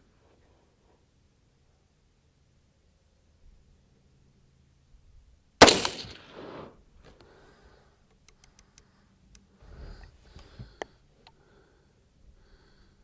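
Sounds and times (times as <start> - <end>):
rifle shot with echo: 5.6 - 6.8.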